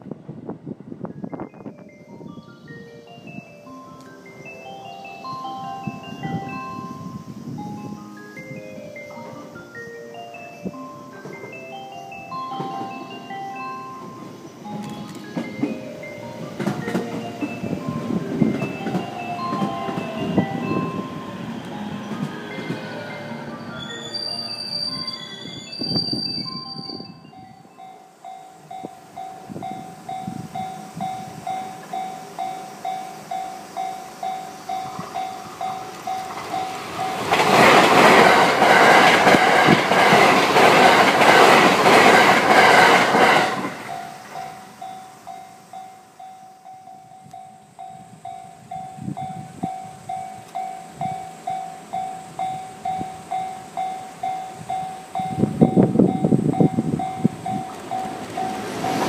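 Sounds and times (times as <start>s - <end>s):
low rumble of approaching train: 0.0s - 59.0s
level crossing bell dinging: 1.3s - 37.4s.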